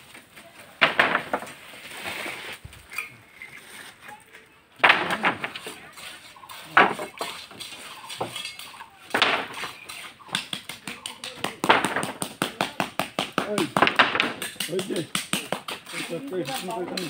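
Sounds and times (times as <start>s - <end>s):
metal tools clanking and scraping: 2.8s - 10.1s.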